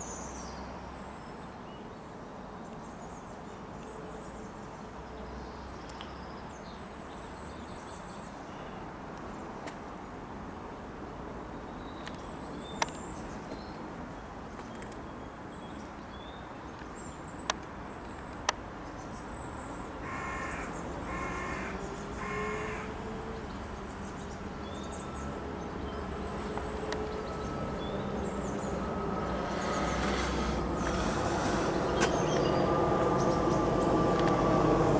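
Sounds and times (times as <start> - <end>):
crow cawing: 20.0 - 22.9.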